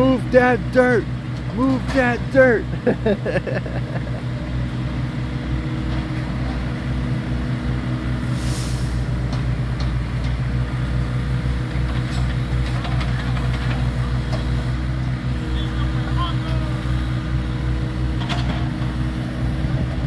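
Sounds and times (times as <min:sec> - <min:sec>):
construction machine engine running: 0:00.0 - 0:20.0
short hiss: 0:08.3 - 0:09.1.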